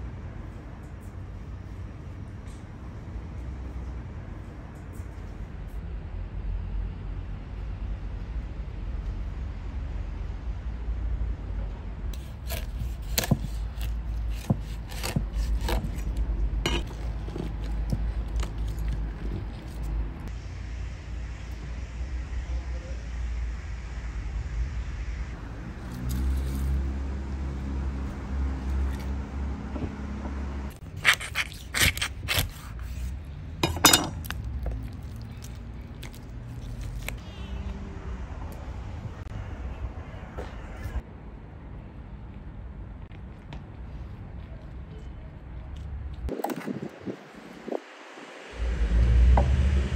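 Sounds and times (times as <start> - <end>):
steady low rumble: 0.0 - 31.0
knife chopping on cutting board: 12.2 - 16.1
knife cutting on wooden board: 12.2 - 20.1, 30.9 - 34.3.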